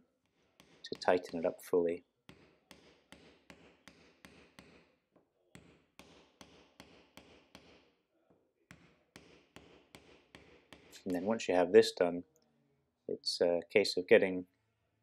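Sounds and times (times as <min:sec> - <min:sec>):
hammer knocking on wood: 0:02.3 - 0:04.9, 0:08.7 - 0:10.9.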